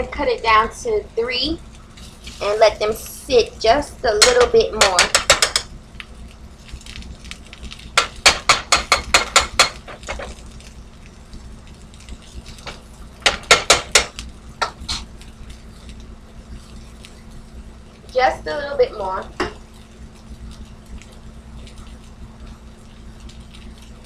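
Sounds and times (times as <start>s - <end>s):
low steady hum: 0.0s - 24.0s
metal spoon tapping frying pan: 4.2s - 5.7s, 8.0s - 10.2s, 13.2s - 15.0s.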